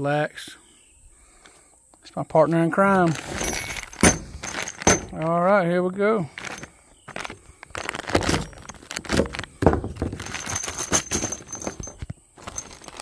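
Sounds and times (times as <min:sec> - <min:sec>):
bolts clinking in bag: 0:02.9 - 0:05.4, 0:06.3 - 0:13.0
plastic bag crinkling: 0:03.0 - 0:05.3, 0:06.4 - 0:13.0.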